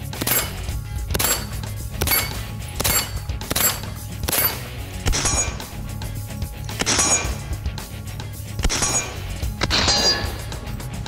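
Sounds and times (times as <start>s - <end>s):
gunshots: 0.0s - 5.7s
background music: 0.0s - 11.0s.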